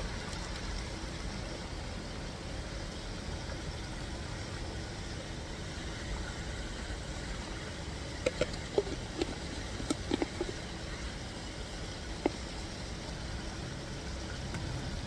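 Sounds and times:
plastic lid clicking on jar: 8.2s - 10.5s.

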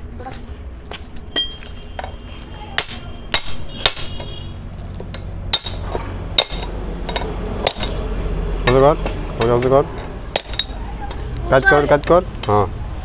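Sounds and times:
hammer striking steel: 1.4s - 2.1s, 2.7s - 4.3s, 5.1s - 8.0s, 8.6s - 10.8s.

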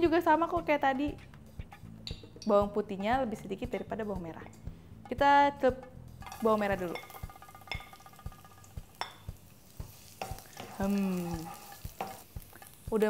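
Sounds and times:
shallots sizzling in hot oil: 5.2s - 13.0s.

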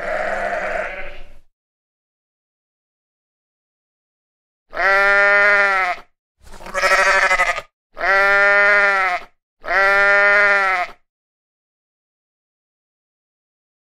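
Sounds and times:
sheep bleating: 0.0s - 1.4s, 4.7s - 11.0s.

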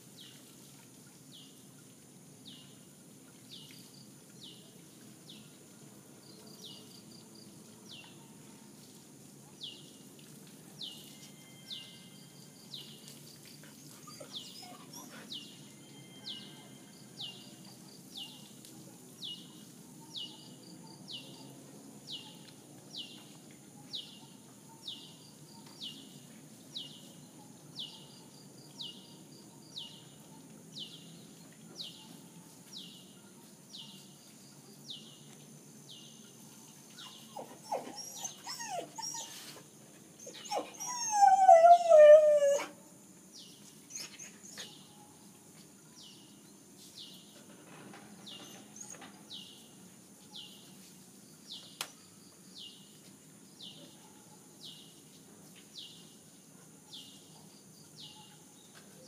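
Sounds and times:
faint high chirp: 10.8s - 13.1s, 14.0s - 17.6s
dog whimpering: 14.0s - 15.3s, 37.1s - 39.6s, 40.2s - 42.7s
dog howling: 37.4s - 39.4s, 40.2s - 42.8s.

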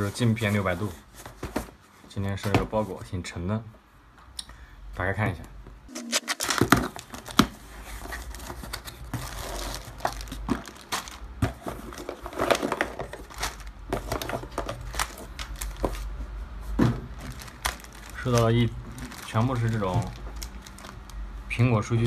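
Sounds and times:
plastic bag crinkling: 6.0s - 16.1s, 17.1s - 21.3s
cardboard and cables handled: 6.2s - 21.3s.

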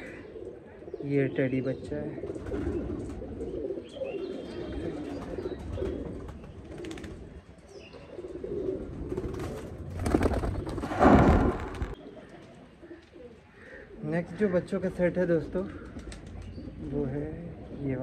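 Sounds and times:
pigeons cooing: 0.0s - 14.7s
wings fluttering: 5.2s - 7.3s, 9.0s - 13.1s.

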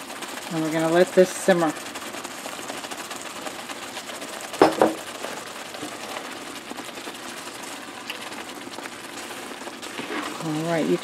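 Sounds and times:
food sizzling in a pan: 0.0s - 11.0s
sharp knocks: 4.6s - 5.0s.

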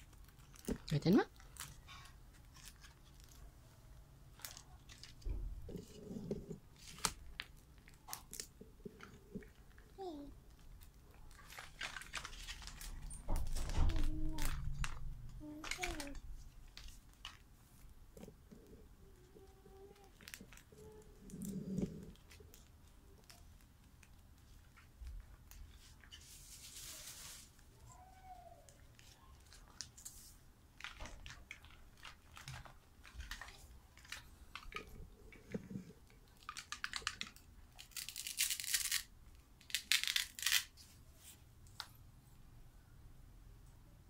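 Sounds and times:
plastic bag crinkling: 0.0s - 3.5s, 4.3s - 17.5s, 30.8s - 40.8s
hard plastic pieces clicking: 36.3s - 40.7s.

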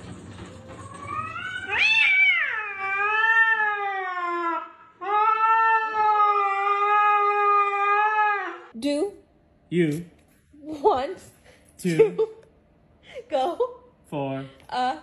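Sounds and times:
cat yowling: 1.0s - 8.7s.

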